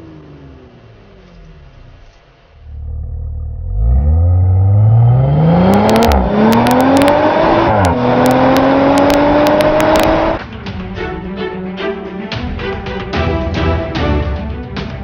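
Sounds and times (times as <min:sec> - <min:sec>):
car engine accelerating hard: 0:00.0 - 0:10.4
exhaust crackles: 0:00.0 - 0:10.4.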